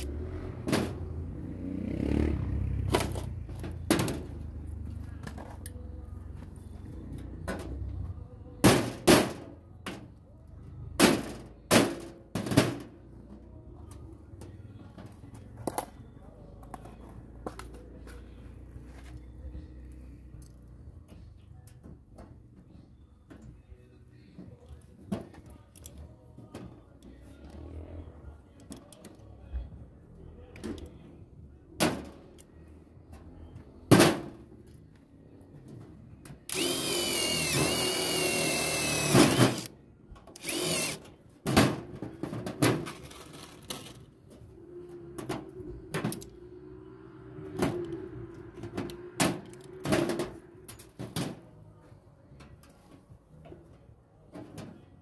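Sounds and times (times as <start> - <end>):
electric power tool whining: 36.5 - 39.7, 40.4 - 41.0.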